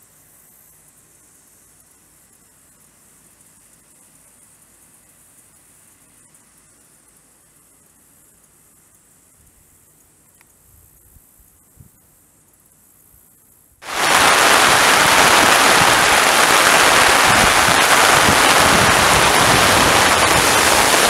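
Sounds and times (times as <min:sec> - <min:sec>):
heavy rain pouring: 0:13.8 - 0:21.0.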